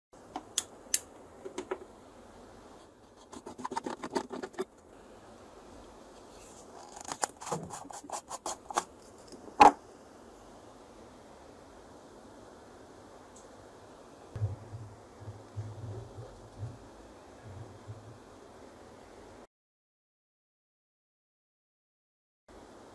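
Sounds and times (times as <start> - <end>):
plastic scraping: 3.0 - 4.8, 6.4 - 9.4.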